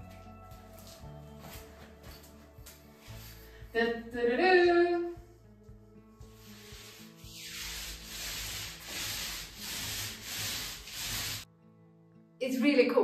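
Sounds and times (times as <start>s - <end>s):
paint roller swishing on wall: 6.1s - 11.5s.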